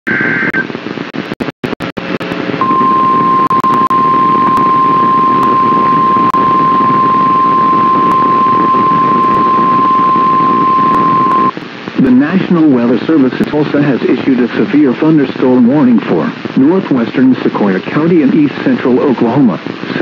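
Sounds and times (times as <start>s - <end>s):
radio static hiss: 0.1s - 20.0s
steady alarm beep: 2.6s - 11.5s.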